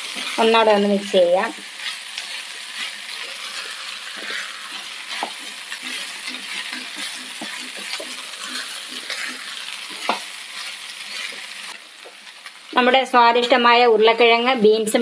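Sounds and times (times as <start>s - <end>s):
vegetables sizzling: 0.0s - 15.0s
wooden spatula scraping pan: 1.5s - 11.8s.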